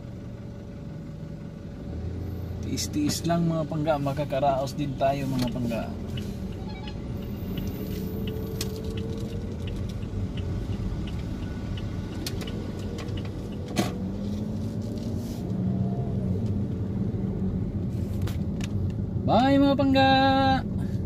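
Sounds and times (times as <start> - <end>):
car engine and road rumble: 0.0 - 21.0.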